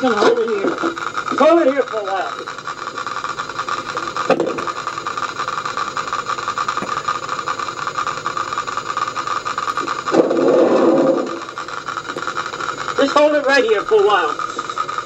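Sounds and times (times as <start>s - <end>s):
van engine idling: 0.0s - 15.0s
rough noise: 10.1s - 11.5s.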